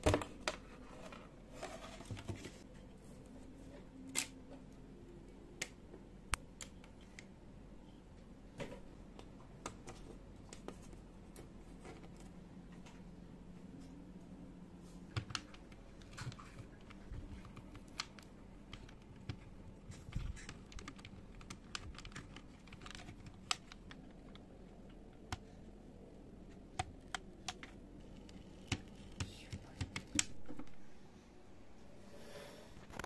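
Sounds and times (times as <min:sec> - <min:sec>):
keyboard keys clicking: 0:15.2 - 0:25.5.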